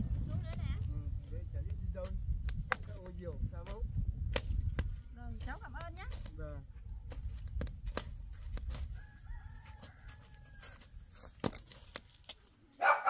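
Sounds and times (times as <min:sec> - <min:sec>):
low rumble: 0:00.0 - 0:05.2
rooster crowing faintly: 0:08.8 - 0:11.1.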